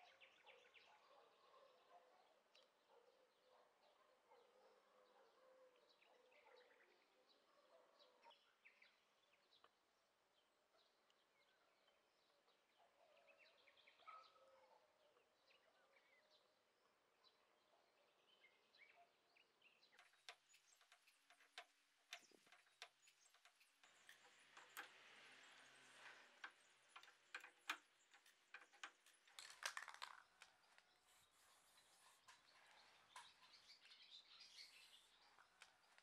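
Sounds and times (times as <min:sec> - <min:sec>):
small bird chirps: 0:18.1 - 0:36.0.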